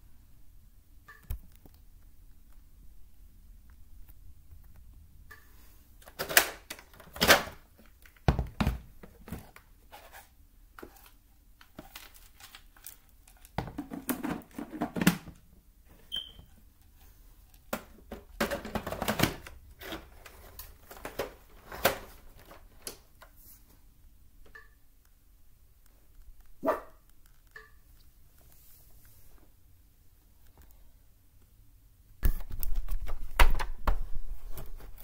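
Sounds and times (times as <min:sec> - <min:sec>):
plastic clicks and rattles: 0:17.5 - 0:23.3.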